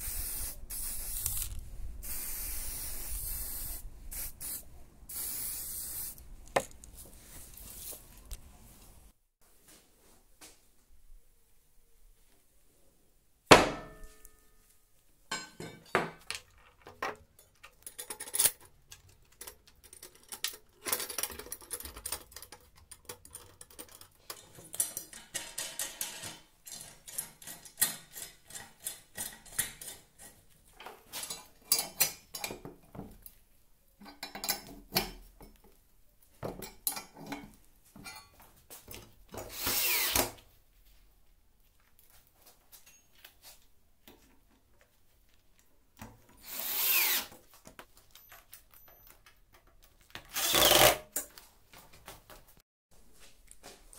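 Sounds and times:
metal parts knocking and clinking: 0:15.3 - 0:30.0
cordless drill whine: 0:39.6 - 0:40.2, 0:46.4 - 0:47.3, 0:50.3 - 0:51.0.

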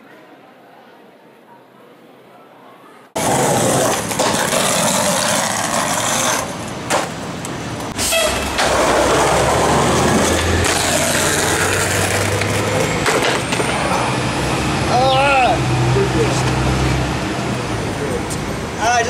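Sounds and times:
skateboard wheels rolling on concrete: 0:03.1 - 0:15.0
skateboard clacks: 0:03.2 - 0:07.2, 0:08.5 - 0:13.7.

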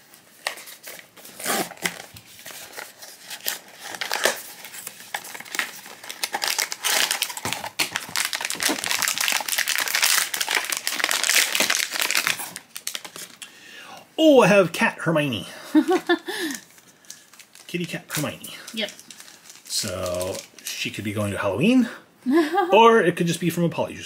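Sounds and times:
foil bag crinkling: 0:00.0 - 0:13.4, 0:15.8 - 0:20.8.

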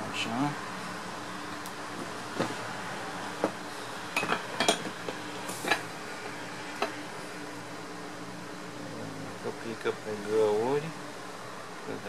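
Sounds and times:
metal clinks and knocks: 0:04.2 - 0:05.0.

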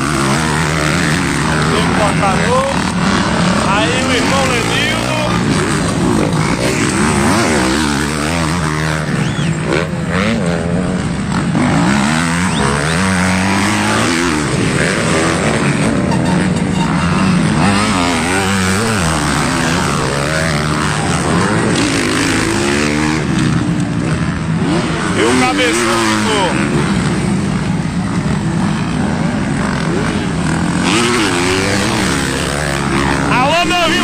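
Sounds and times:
dirt bike engines revving: 0:00.0 - 0:34.0.

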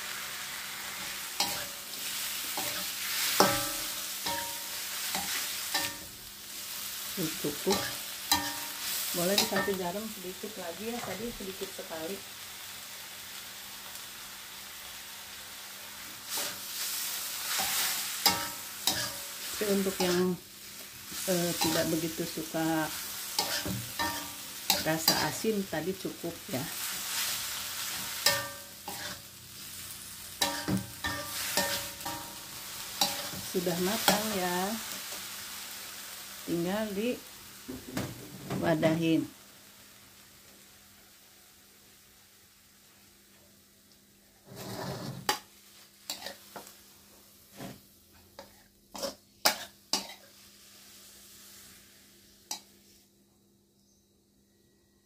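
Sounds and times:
food sizzling: 0:00.0 - 0:53.0
metal spatula scraping wok: 0:00.9 - 0:06.1, 0:07.3 - 0:09.8, 0:16.3 - 0:20.3, 0:21.2 - 0:25.4, 0:26.7 - 0:34.4, 0:44.4 - 0:45.4, 0:46.1 - 0:46.4, 0:48.4 - 0:50.4
spatula clanking on metal wok: 0:03.4 - 0:06.0, 0:07.7 - 0:08.8, 0:09.4 - 0:09.8, 0:23.4 - 0:25.3, 0:28.2 - 0:29.2, 0:30.4 - 0:32.4.

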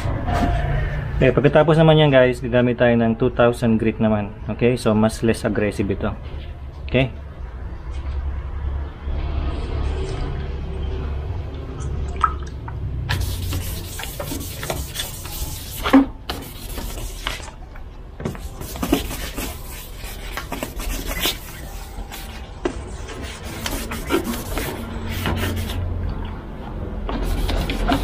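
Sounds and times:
sandpaper rasping on plastic: 0:13.1 - 0:17.5, 0:18.4 - 0:25.8, 0:27.1 - 0:28.0.

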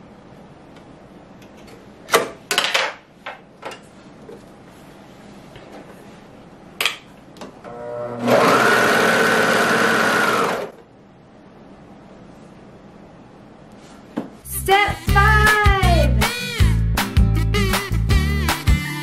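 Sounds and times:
serger motor running: 0:07.7 - 0:10.8.

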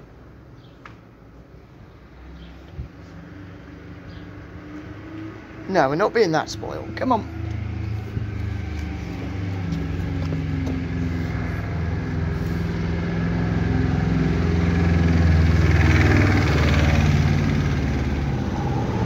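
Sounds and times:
vehicle engine running: 0:05.4 - 0:19.0.

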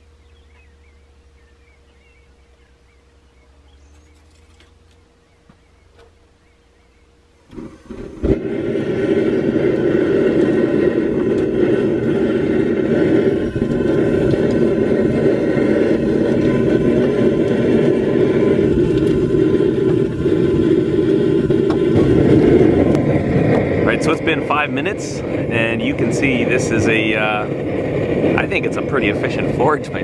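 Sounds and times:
burner sputtering: 0:00.0 - 0:30.0
gas flame burning steadily: 0:00.0 - 0:30.0
burner igniting whump: 0:07.4 - 0:30.0.

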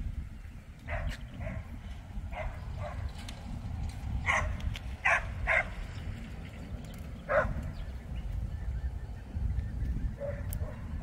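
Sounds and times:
steady low rumble: 0:00.0 - 0:11.0
distant dog barking: 0:00.8 - 0:03.1, 0:04.2 - 0:05.8, 0:07.2 - 0:07.7, 0:10.2 - 0:11.0.

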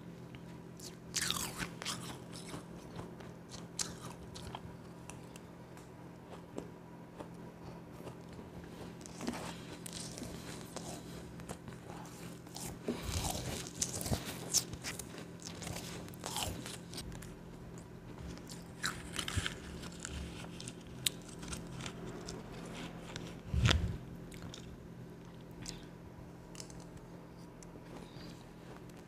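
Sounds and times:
chewing crunchy ice: 0:00.8 - 0:05.4, 0:06.2 - 0:23.4.

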